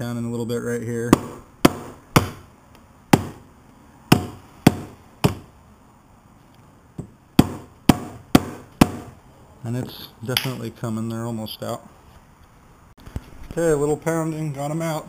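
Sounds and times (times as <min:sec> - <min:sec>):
rubber mallet striking metal: 0:01.1 - 0:02.5, 0:03.1 - 0:03.5, 0:04.1 - 0:05.5, 0:07.0 - 0:09.2.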